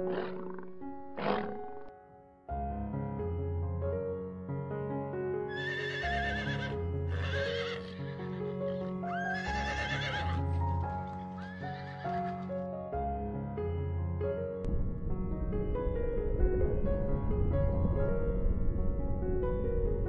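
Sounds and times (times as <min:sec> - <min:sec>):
horse whinnying: 0:00.0 - 0:01.9, 0:05.5 - 0:10.5, 0:11.3 - 0:12.4
sustained background music: 0:00.0 - 0:04.4.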